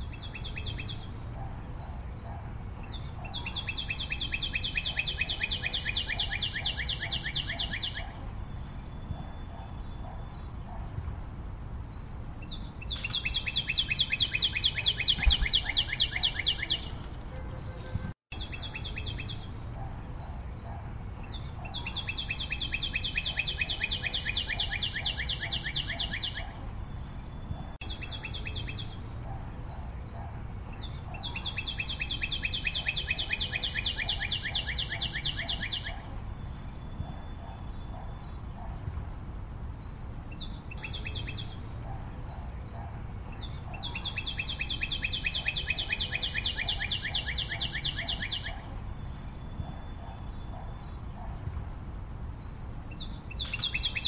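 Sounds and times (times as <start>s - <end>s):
bird trilling: 3.2s - 8.2s, 12.8s - 19.4s, 21.6s - 26.6s, 31.1s - 36.1s, 43.4s - 48.7s, 53.0s - 54.0s.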